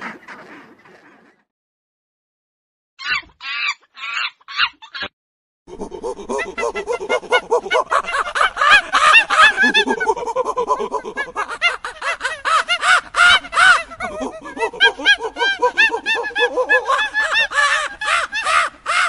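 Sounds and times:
macaques harsh calls: 5.8s - 19.0s.

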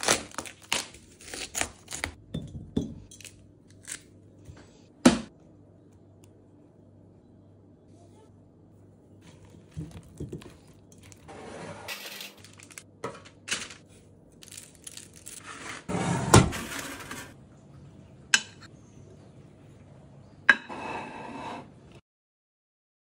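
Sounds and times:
baking paper rustling: 9.2s - 17.4s.

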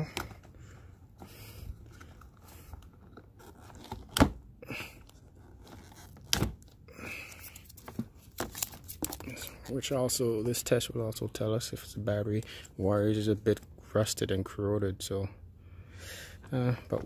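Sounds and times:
hands scraping and rustling wiring: 4.8s - 10.8s.

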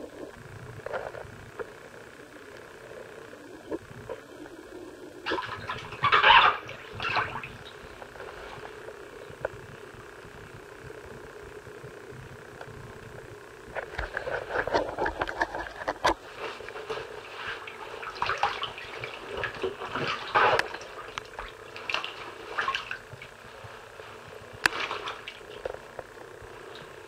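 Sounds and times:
bathwater sloshing and splashing: 5.2s - 8.8s, 16.2s - 25.9s.

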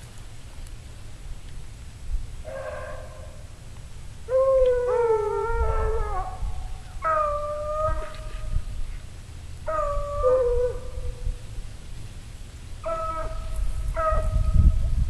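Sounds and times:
low wind rumble: 0.0s - 15.0s
dogs howling: 4.3s - 8.3s, 9.7s - 11.2s, 12.8s - 14.4s.

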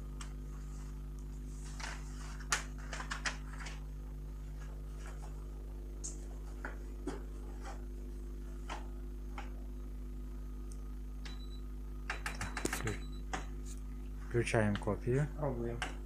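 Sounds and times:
steady low hum: 0.0s - 16.0s
paper sheets rustling: 0.5s - 3.9s.

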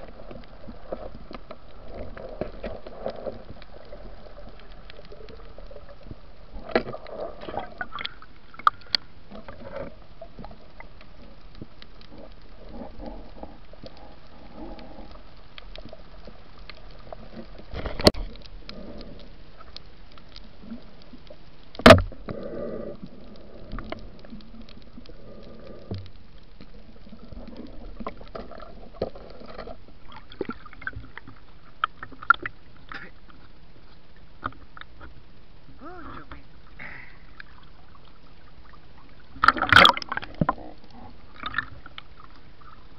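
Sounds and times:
small underwater clicks: 0.0s - 42.9s
underwater hiss: 22.1s - 24.3s.

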